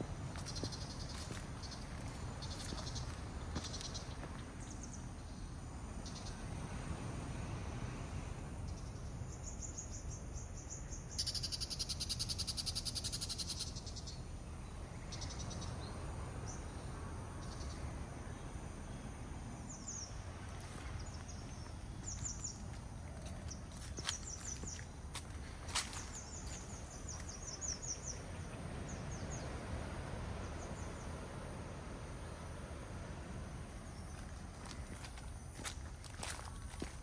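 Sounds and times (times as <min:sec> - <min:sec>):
faint pulsed insect call: 0:00.0 - 0:37.0.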